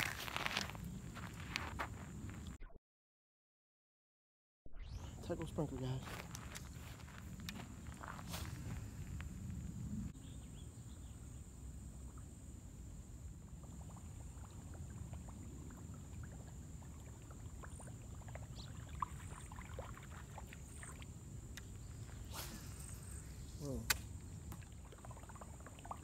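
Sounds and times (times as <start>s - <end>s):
low wind rumble on microphone: 6.1s - 24.6s
sharp click: 23.8s - 24.1s.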